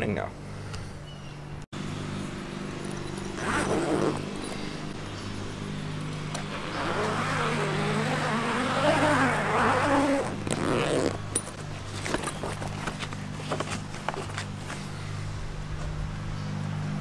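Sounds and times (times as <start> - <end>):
zipper being pulled open: 3.0 - 4.9, 6.1 - 14.6.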